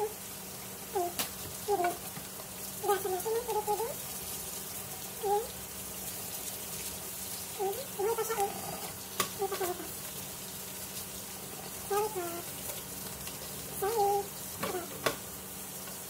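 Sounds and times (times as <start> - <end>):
tap water running into sink: 0.0 - 16.0.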